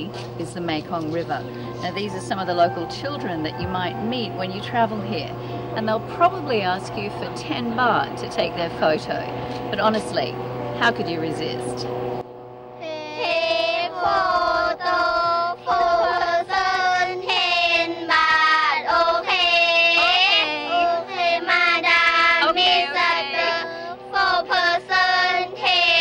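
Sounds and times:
girls singing together: 12.8 - 26.0.

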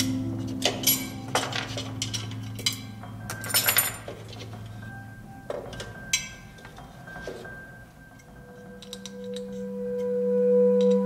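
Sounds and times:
small metal parts clinking: 0.0 - 4.6
soft background music: 0.0 - 11.0.

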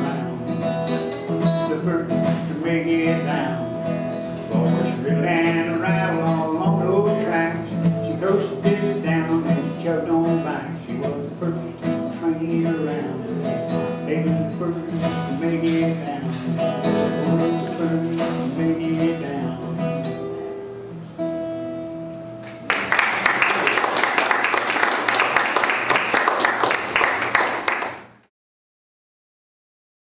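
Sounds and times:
acoustic guitar playing: 0.0 - 28.2
audience clapping: 22.4 - 28.3.

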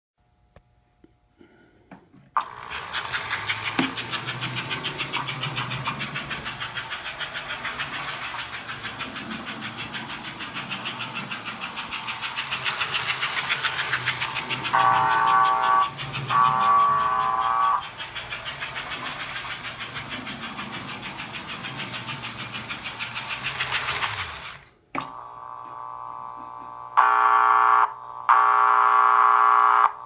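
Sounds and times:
rhythmic chugging: 2.4 - 24.6
toy train motor whirring: 2.4 - 24.9.

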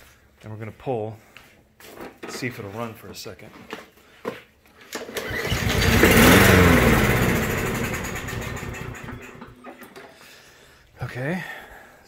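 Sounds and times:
lawn mower engine starting and revving: 4.9 - 10.1.

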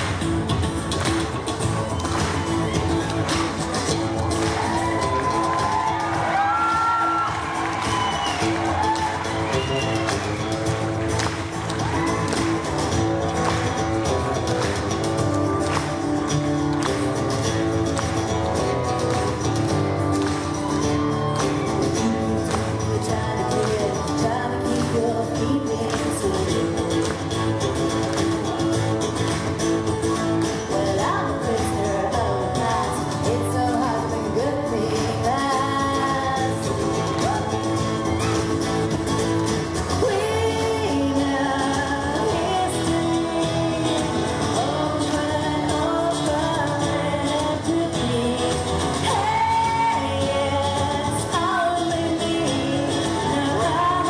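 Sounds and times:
acoustic accompaniment: 0.0 - 54.0
woman singing pop song: 21.5 - 28.0, 30.4 - 38.0, 39.8 - 54.0.

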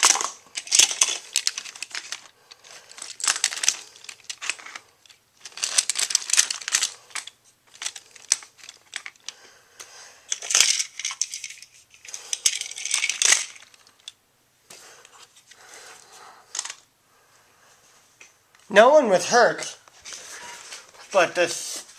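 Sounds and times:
plastic toy pieces rattling: 0.0 - 9.3, 10.3 - 14.2, 16.5 - 16.8.

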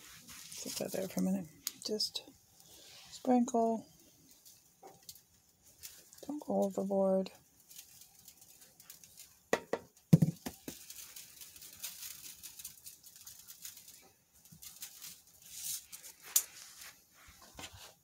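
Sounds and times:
granules pattering from shaker: 4.3 - 17.0
shaker knocks: 9.5 - 10.9.

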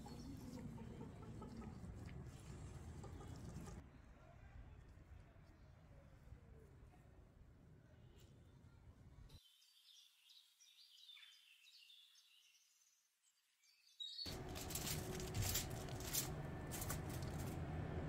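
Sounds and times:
aluminium foil crackling: 14.3 - 17.7
low steady hum: 14.3 - 18.0.

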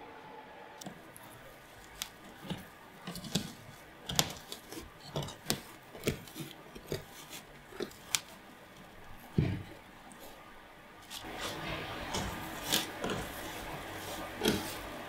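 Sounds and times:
roots tearing with crisp snaps: 0.8 - 9.0.

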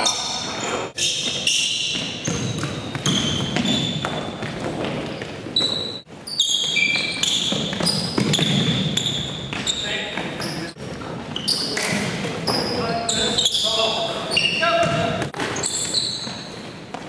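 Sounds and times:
sneakers squeaking on gym floor: 0.0 - 17.0
basketball bouncing: 1.2 - 6.0, 6.7 - 10.5, 14.8 - 15.6.

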